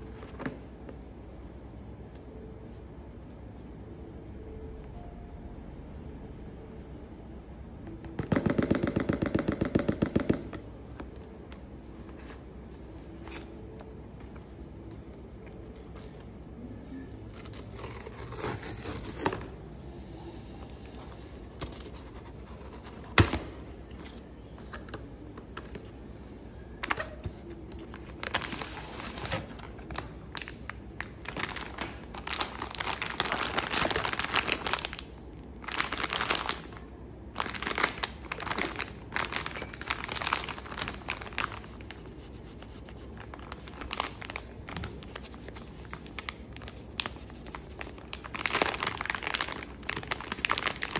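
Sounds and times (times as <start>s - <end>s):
foil bag crinkling: 29.9s - 36.8s, 37.4s - 42.0s, 43.0s - 50.9s.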